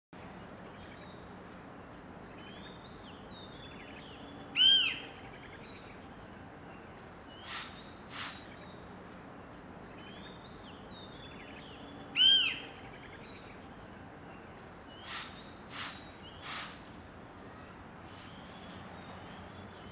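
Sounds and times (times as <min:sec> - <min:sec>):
woodpecker calling: 0:03.8 - 0:05.8, 0:07.3 - 0:08.8, 0:11.4 - 0:13.5, 0:14.4 - 0:18.8.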